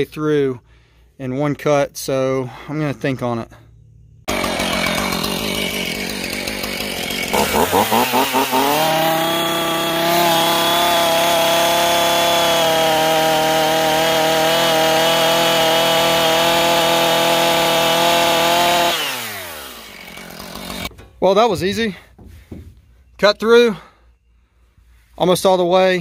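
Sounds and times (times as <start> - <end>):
chainsaw cutting foam: 4.3 - 20.9
chainsaw idling and revving: 4.3 - 20.9.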